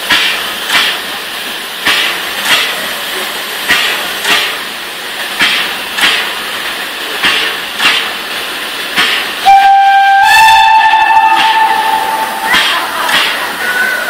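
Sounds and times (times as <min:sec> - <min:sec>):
steam locomotive puffing: 0:00.0 - 0:14.0
steam whistle blowing: 0:09.4 - 0:13.0.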